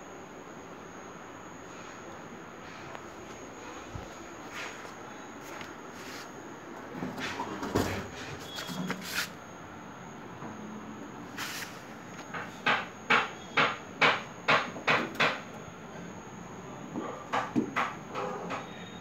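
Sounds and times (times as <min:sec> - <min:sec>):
sharp knocks: 0:12.3 - 0:15.4, 0:17.3 - 0:18.7.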